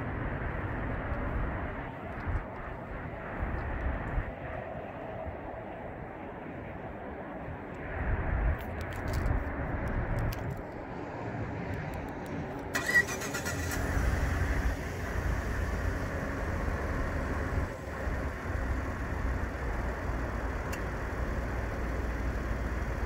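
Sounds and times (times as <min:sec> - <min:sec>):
truck engine starting and idling: 0:12.2 - 0:23.0.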